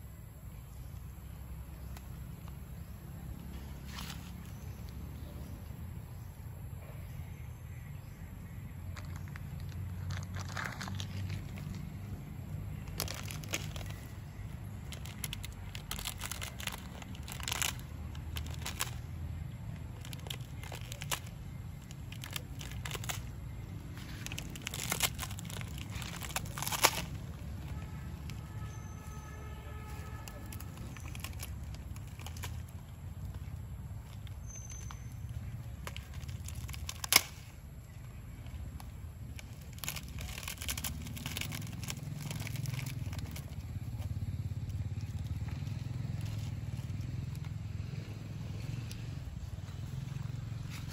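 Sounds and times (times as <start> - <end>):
plastic packet crinkling: 9.0 - 19.2, 20.0 - 28.6, 29.7 - 33.0, 34.0 - 37.5, 38.9 - 44.0
dry noodles crunching: 9.0 - 28.8, 29.5 - 47.9.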